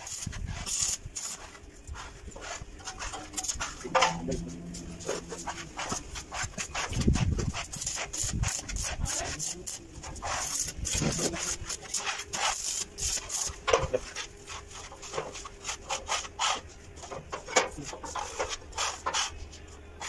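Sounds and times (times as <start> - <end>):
metal scraping and knocking: 2.8 - 7.5, 17.0 - 19.2.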